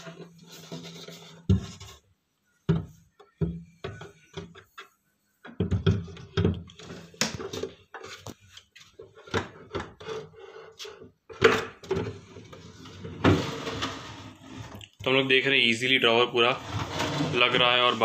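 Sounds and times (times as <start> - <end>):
wooden knocks and scrapes: 0.0 - 2.0, 2.7 - 14.8, 16.6 - 18.0
wooden drawer sliding: 11.5 - 14.8, 16.5 - 18.0.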